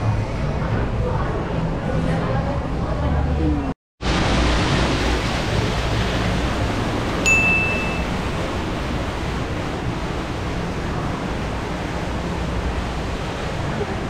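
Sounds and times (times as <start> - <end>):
rushing background noise: 0.0 - 14.0
bell-like ding: 7.3 - 8.2.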